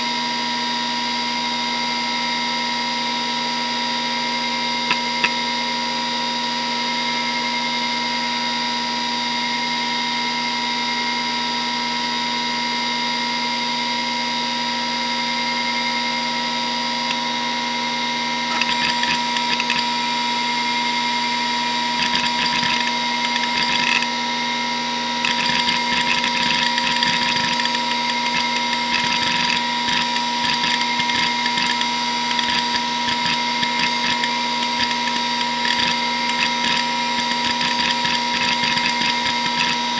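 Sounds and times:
hard drive whine: 0.0 - 39.9
drive heads seeking clicks: 18.5 - 19.9, 25.3 - 39.9.

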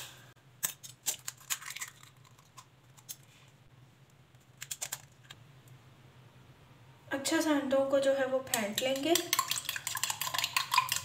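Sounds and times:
eggshell cracking: 0.6 - 2.7, 8.5 - 11.0.

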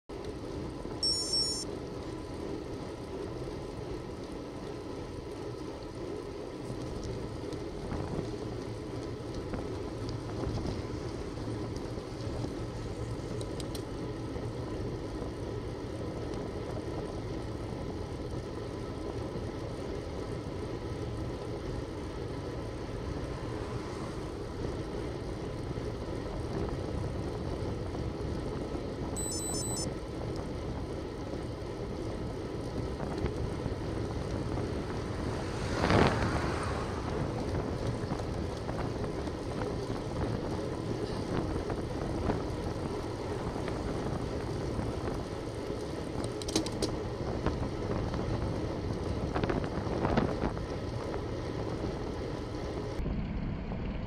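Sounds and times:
wind: 0.0 - 54.0
road rumble: 0.1 - 54.0
high electronic beeps: 1.0 - 1.6, 29.2 - 29.9.

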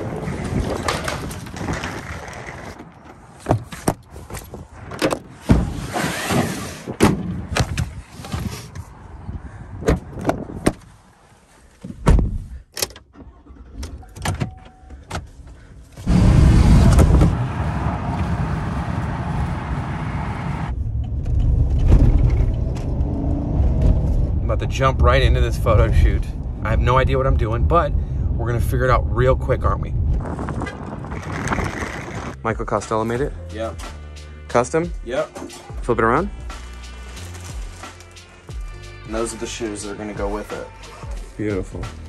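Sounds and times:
car engine and road noise: 0.0 - 42.0
car doors clicking and thudding: 11.8 - 15.5.

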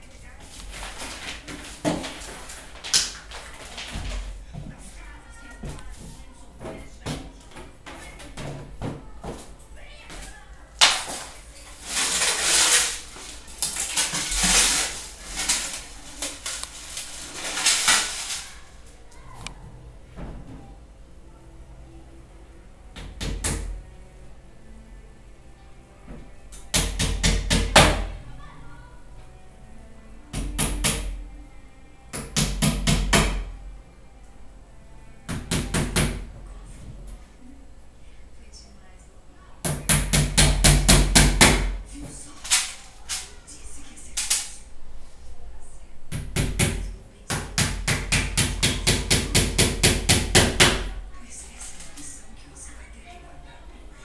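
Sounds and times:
scraping and rustling: 0.1 - 5.0, 5.6 - 19.7.

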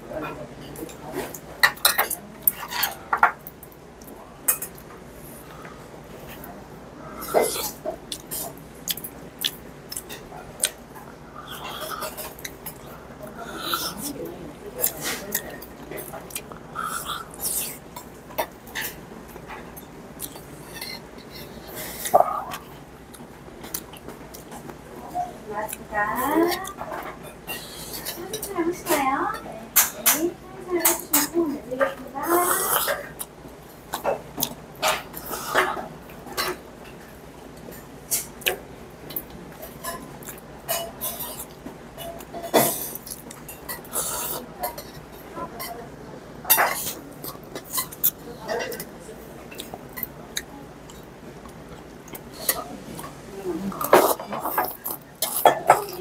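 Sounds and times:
chopsticks clattering: 53.7 - 56.0.

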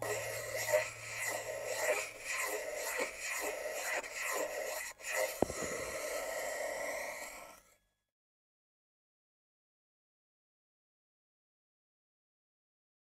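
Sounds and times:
scratchy noise texture: 0.0 - 7.6.

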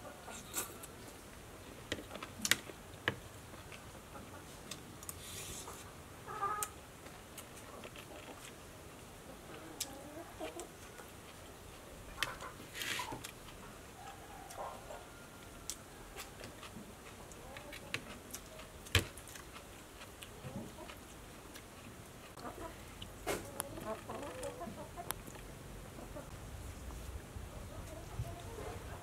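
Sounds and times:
chickens clucking: 3.7 - 4.7, 5.6 - 6.8, 9.2 - 18.7, 20.4 - 21.1, 22.3 - 29.0.

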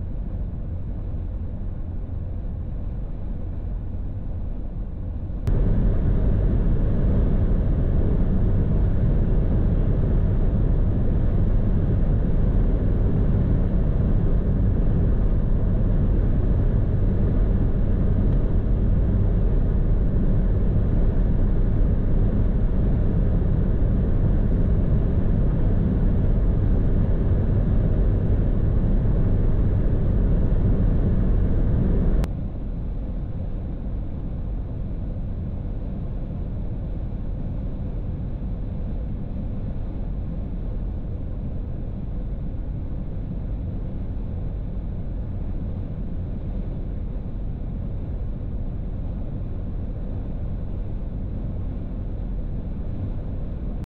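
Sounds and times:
car cabin rumble: 5.4 - 32.3.

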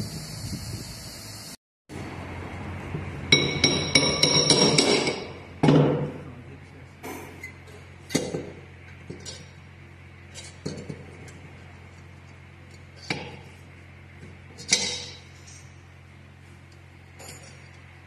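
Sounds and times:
low machine hum: 0.0 - 18.0
metal clinks and knocks: 17.1 - 17.8.

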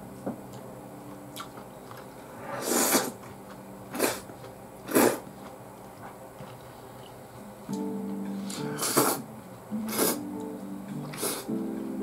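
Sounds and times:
faint steady hum: 0.0 - 12.0
person slurping noodles: 2.6 - 3.2, 4.9 - 5.2, 8.7 - 9.2, 9.9 - 10.2.

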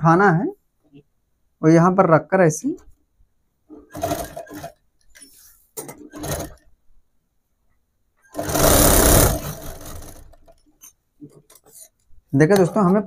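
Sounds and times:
sewing machine stitching: 3.7 - 6.7, 8.2 - 10.9.

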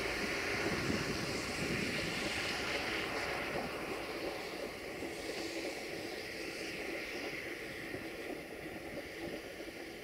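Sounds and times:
train wheels on rails: 0.0 - 10.0.

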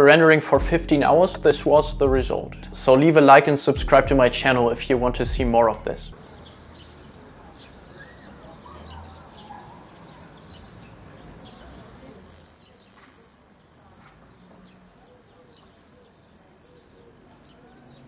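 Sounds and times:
crickets chirping: 12.1 - 18.0.

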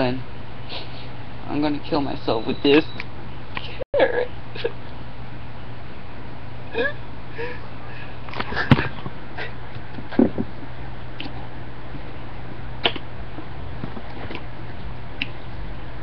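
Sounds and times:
steady low hum: 0.0 - 16.0
sharp clicks and knocks: 12.8 - 13.0.

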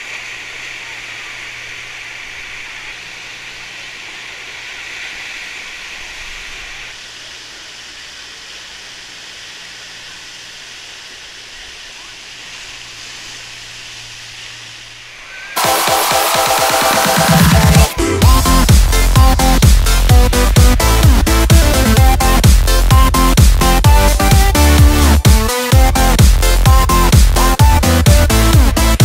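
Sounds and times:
rushing water: 0.0 - 29.0
low steady hum: 17.9 - 29.0.

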